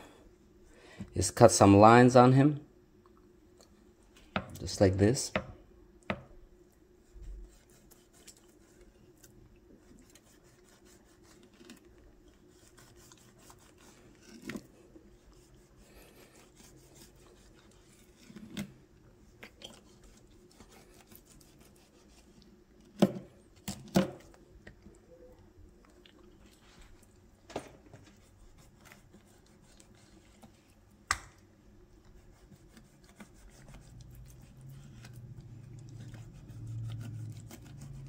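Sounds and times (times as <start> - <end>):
knife slicing fish skin: 9.8 - 14.7, 19.7 - 22.3, 32.2 - 35.3, 36.0 - 38.0.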